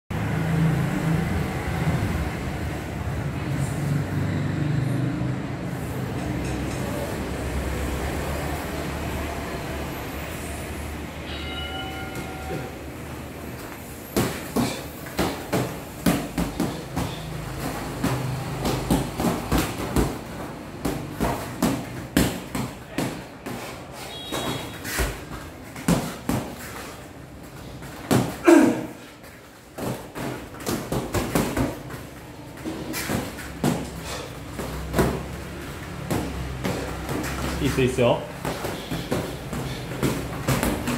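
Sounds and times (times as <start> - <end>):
boxing gloves thudding and slapping: 14.0 - 29.1, 29.7 - 40.9.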